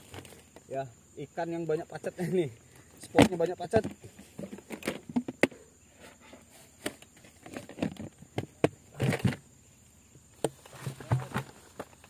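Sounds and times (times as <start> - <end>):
plastic bucket knocks and clicks: 3.1 - 5.6, 6.8 - 9.4, 10.4 - 12.0
rustling: 10.4 - 12.0.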